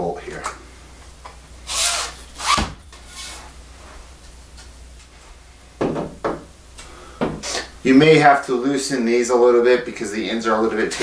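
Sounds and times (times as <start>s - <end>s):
pole sections rasping rub: 1.7s - 3.9s.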